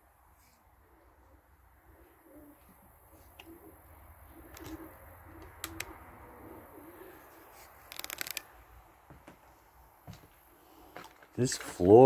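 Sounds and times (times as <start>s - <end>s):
pigeons cooing: 0.8s - 8.2s
sharp crackling clicks: 5.4s - 6.0s, 7.9s - 8.5s.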